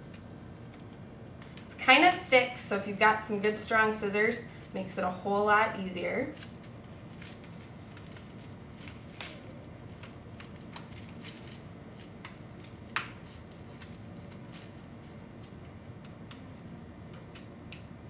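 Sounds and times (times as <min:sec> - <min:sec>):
low steady hum: 0:00.0 - 0:18.0
paper handling: 0:05.7 - 0:17.9.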